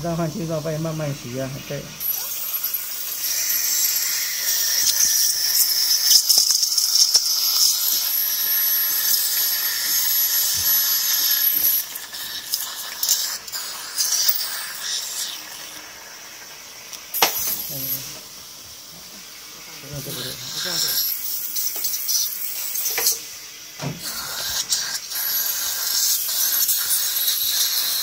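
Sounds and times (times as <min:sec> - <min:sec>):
water spray hiss: 0:00.0 - 0:28.0
suction in the mouth: 0:02.0 - 0:16.2, 0:19.9 - 0:23.2, 0:24.0 - 0:28.0.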